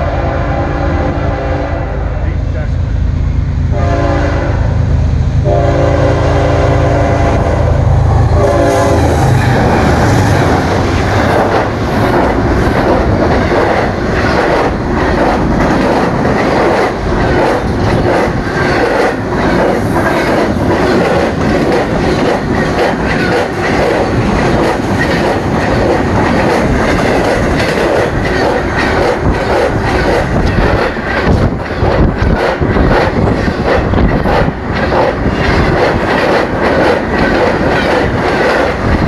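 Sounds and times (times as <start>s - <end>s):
train horn blasts: 0.0s - 2.5s, 3.7s - 9.3s
rush of wind: 6.1s - 39.0s
wheels clattering on rails: 9.2s - 39.0s.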